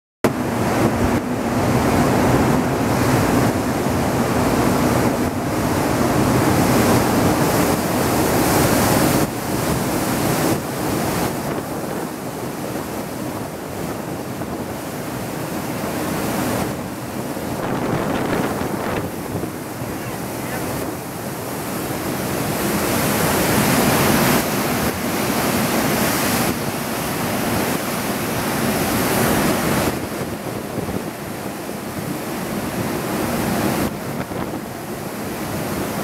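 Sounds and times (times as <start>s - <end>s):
ship's wake churning: 0.2s - 36.0s
wind buffeting microphone: 0.3s - 36.0s.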